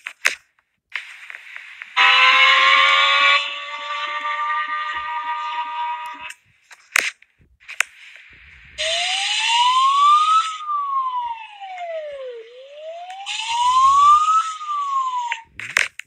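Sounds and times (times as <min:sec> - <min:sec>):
siren wailing: 0:02.0 - 0:06.3, 0:08.4 - 0:15.6.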